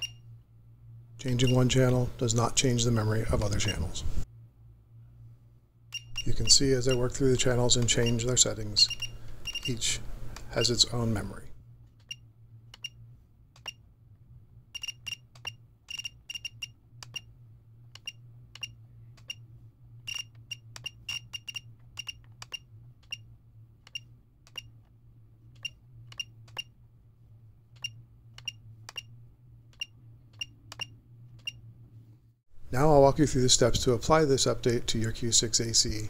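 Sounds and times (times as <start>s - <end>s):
short high beeps: 0.0s - 0.3s
steady low hum: 0.0s - 36.0s.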